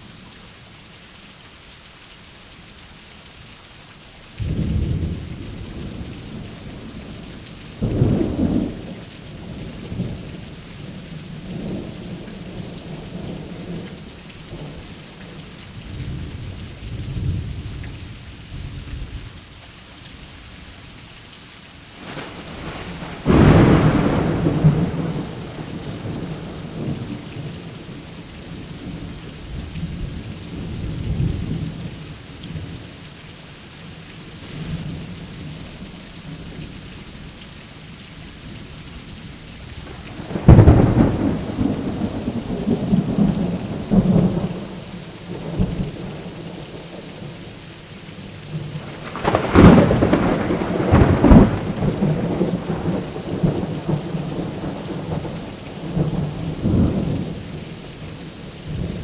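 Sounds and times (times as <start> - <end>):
steady rain: 0.0 - 59.0
thunder cracks and rumbles: 22.0 - 27.8, 39.8 - 44.7, 48.8 - 57.4.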